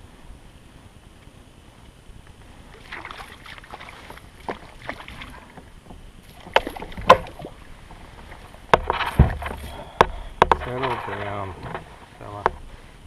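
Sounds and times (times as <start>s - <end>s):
sharp knocks: 6.5s - 7.5s.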